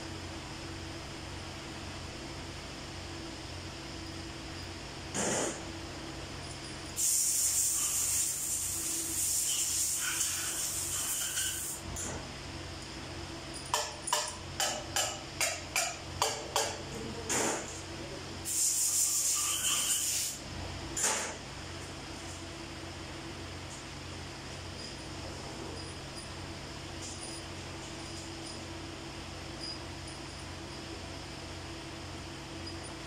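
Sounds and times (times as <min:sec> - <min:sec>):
steady low hum: 0:00.0 - 0:19.5, 0:20.3 - 0:33.0
air hiss bursts: 0:07.0 - 0:11.8, 0:18.4 - 0:20.4.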